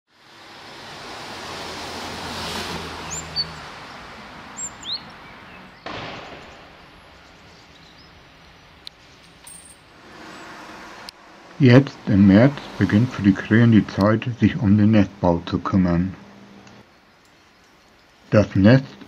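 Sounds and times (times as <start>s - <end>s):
outdoor background noise: 0.1s - 19.0s
high bird chirps: 3.0s - 3.7s, 4.6s - 9.3s.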